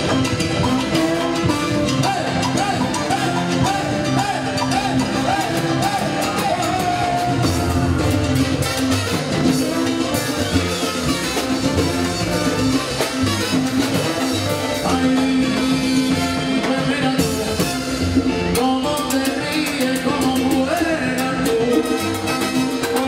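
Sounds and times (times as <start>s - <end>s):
congas and timbales: 0.0s - 23.0s
salsa band playing: 0.0s - 23.0s
trombones: 0.0s - 23.0s.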